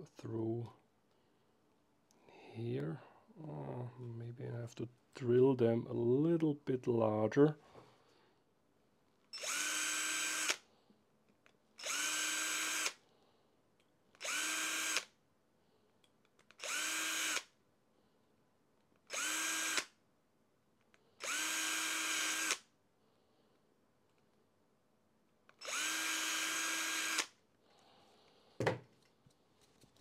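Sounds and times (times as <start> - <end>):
cordless drill whining: 9.3 - 10.6, 11.8 - 13.0, 14.1 - 15.1, 16.5 - 17.5, 19.1 - 19.9, 21.2 - 22.7, 25.5 - 27.4.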